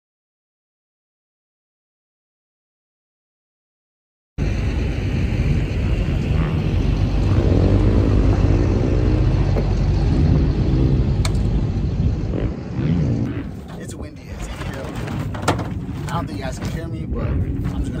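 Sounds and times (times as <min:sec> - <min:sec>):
wind buffeting microphone: 0:04.4 - 0:18.0.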